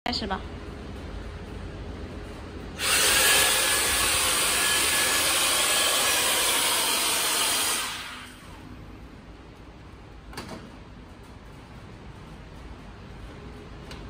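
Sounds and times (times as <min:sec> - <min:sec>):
vacuum suction tool motor hissing: 0:02.8 - 0:08.4.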